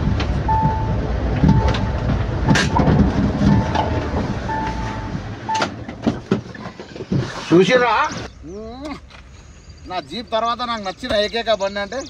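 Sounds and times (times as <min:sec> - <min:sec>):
vehicle engine rumble: 0:00.0 - 0:12.0
electronic warning chime beeps: 0:00.5 - 0:05.7.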